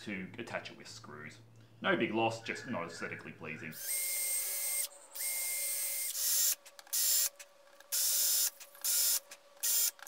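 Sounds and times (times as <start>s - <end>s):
cordless drill drilling into wood: 3.8s - 10.0s.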